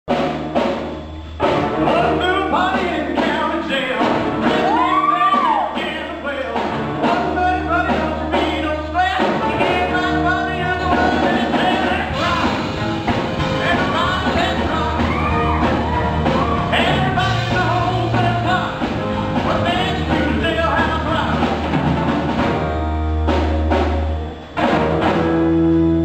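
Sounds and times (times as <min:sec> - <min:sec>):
rock band playing: 0:00.1 - 0:26.0
lead singer: 0:01.6 - 0:21.7.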